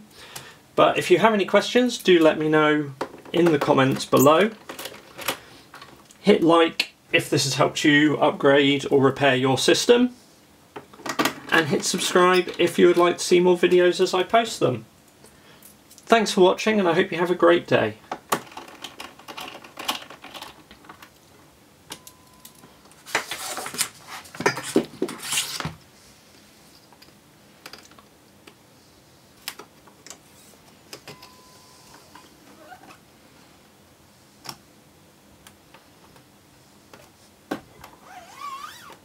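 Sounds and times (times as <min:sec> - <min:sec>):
plastic squeak: 0:37.9 - 0:39.0.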